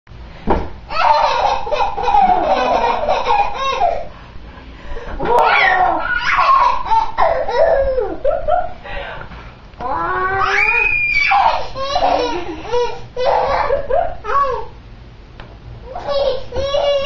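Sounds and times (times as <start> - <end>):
child laughing and squealing: 5.2 - 8.8, 9.9 - 14.7, 15.9 - 17.0.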